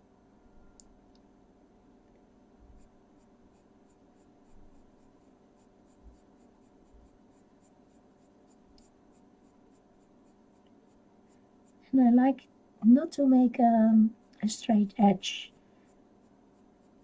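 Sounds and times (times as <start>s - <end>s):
low steady hum: 0.0s - 17.0s
pencil scratching on paper: 2.7s - 11.8s, 15.8s - 17.0s.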